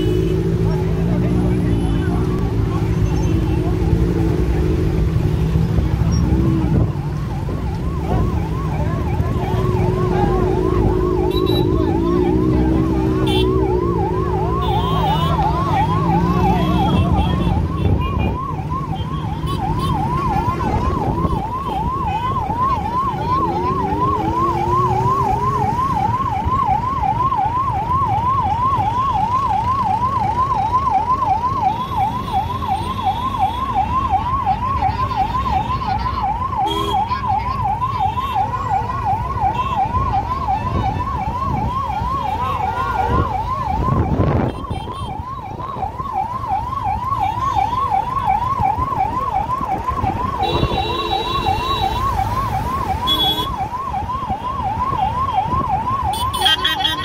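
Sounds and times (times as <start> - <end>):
low vehicle rumble: 0.0 - 31.5
fire engine siren yelping: 0.0 - 57.0.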